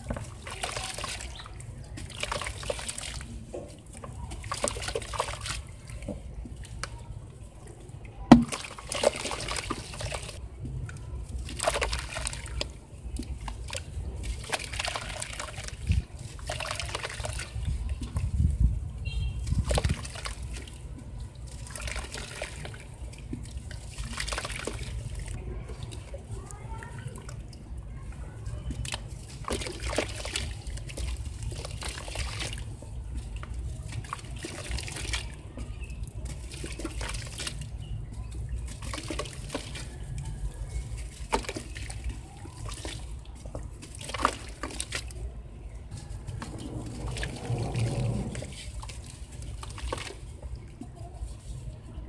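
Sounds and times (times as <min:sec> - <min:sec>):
water sloshing and trickling: 0:00.0 - 0:52.0
wet sand crumbling in water: 0:28.4 - 0:51.4.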